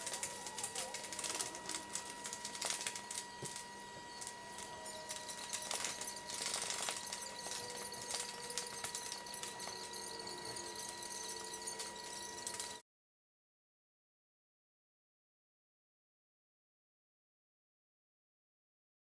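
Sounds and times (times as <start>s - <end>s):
faint steady high tone: 0.0s - 12.8s.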